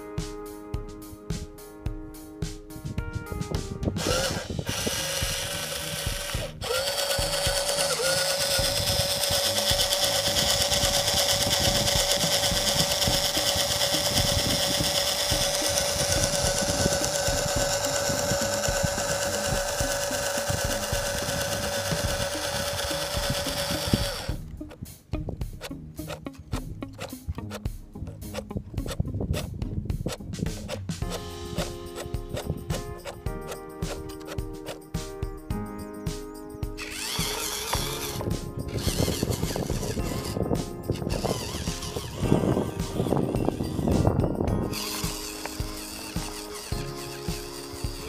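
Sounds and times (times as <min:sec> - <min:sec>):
toy truck motor whine: 0:04.0 - 0:24.4, 0:36.8 - 0:40.4, 0:41.0 - 0:43.9, 0:44.7 - 0:48.0.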